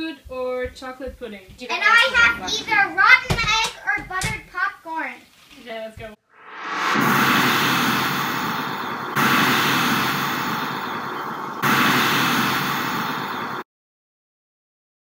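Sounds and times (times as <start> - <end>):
long noisy bursts: 6.5 - 13.6.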